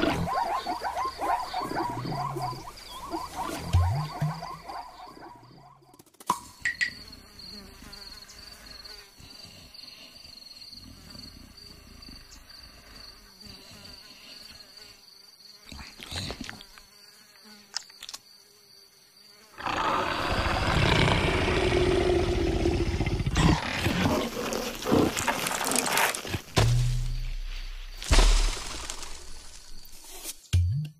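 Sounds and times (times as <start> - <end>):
animal grunting: 0.0 - 5.6, 19.6 - 26.0
fly buzzing: 0.0 - 10.1, 11.2 - 26.6
rustling and creaking: 23.8 - 26.6.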